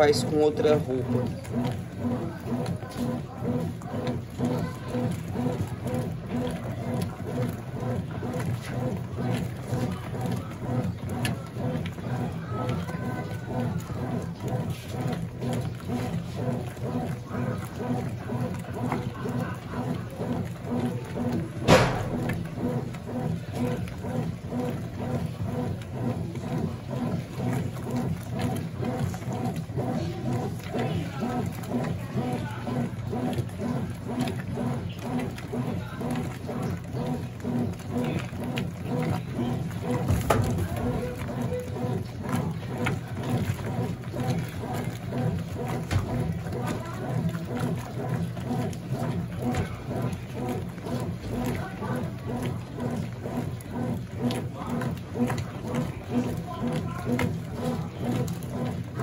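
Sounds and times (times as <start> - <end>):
washing machine churning: 0.0 - 59.0
sharp knock: 21.7 - 22.1.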